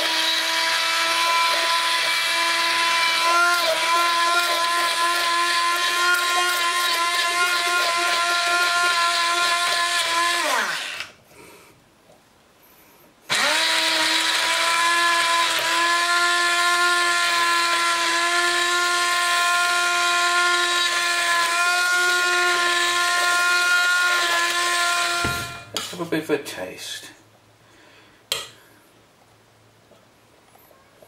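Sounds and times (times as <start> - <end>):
stick blender motor whine: 0.0 - 11.2, 13.3 - 25.9.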